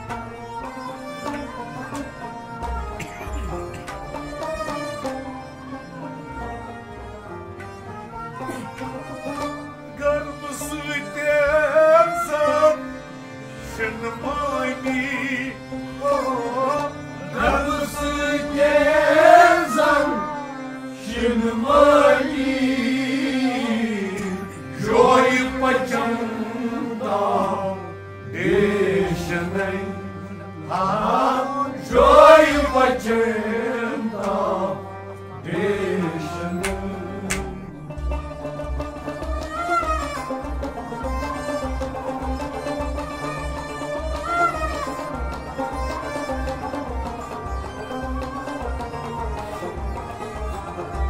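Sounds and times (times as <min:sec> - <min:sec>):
instrumental accompaniment: 0:00.0 - 0:51.0
man singing: 0:10.0 - 0:12.9, 0:13.6 - 0:34.7.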